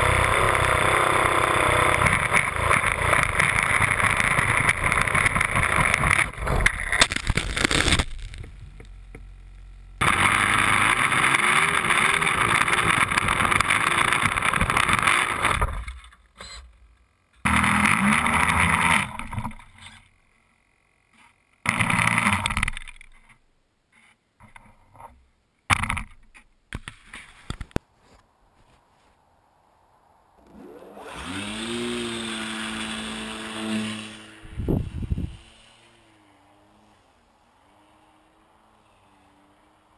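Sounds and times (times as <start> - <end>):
model airplane engine: 0.0 - 7.0, 8.6 - 23.0, 30.4 - 39.9.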